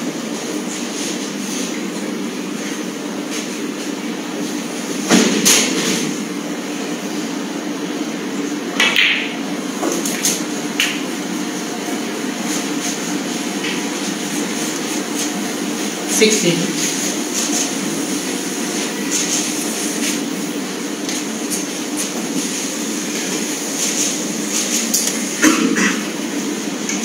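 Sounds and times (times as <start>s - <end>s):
low hum of hall: 0.0s - 27.0s
snooker balls clicking: 8.8s - 9.4s.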